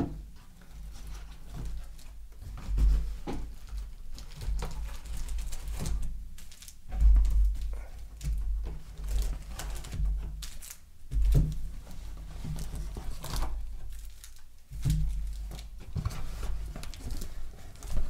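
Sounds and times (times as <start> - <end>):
paper card packs rustling: 3.6 - 6.9, 8.9 - 10.8, 12.5 - 18.0.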